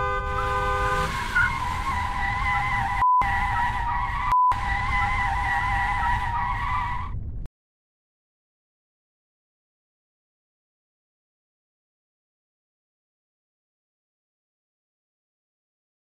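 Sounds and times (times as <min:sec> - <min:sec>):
car horn: 0:00.0 - 0:07.1.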